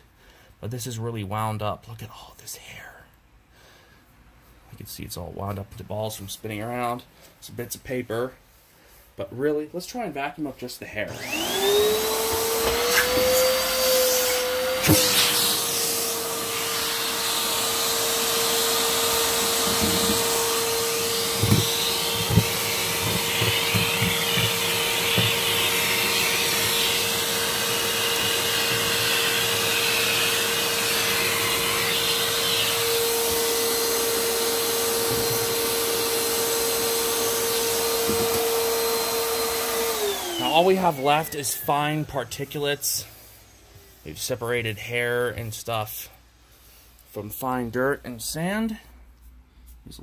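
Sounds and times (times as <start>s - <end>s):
vacuum cleaner whine: 11.1s - 43.9s.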